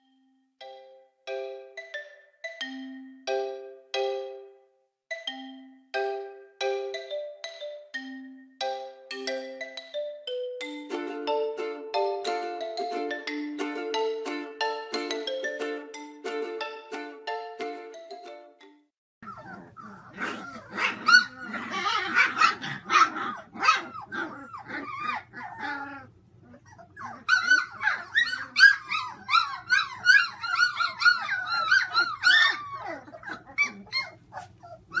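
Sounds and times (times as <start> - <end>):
puppies crying and yipping: 19.2 - 35.0.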